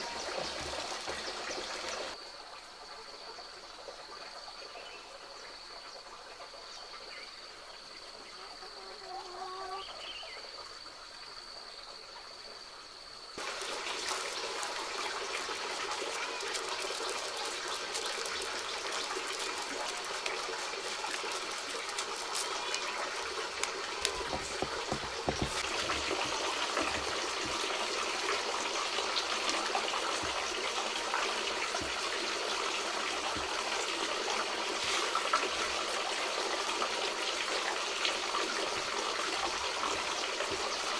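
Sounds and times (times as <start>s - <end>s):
maize kernels rattling into basket: 13.4s - 28.3s.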